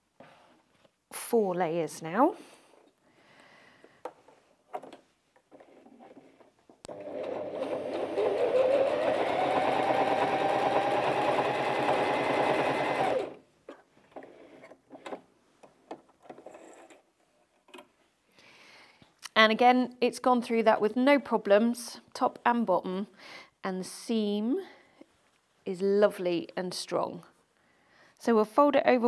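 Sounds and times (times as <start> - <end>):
sewing machine stitching: 6.9 - 13.4.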